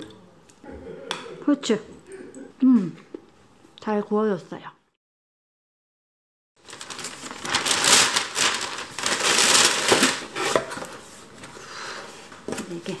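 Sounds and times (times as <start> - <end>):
paper bag rustling: 6.6 - 11.4.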